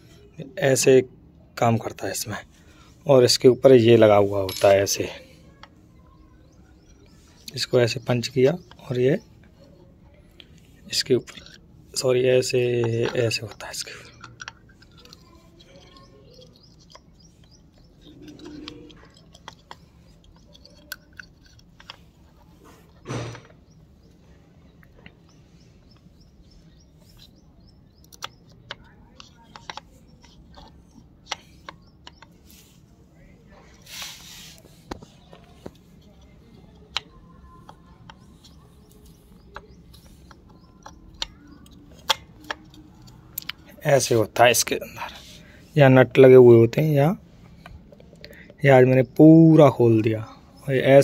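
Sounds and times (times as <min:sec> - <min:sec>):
small clicks and metal knocks: 0:10.4 - 0:32.6, 0:34.6 - 0:45.2.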